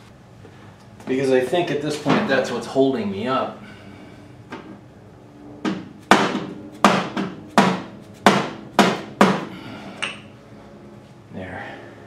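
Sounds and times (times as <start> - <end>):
hammer striking metal: 5.6 - 10.2.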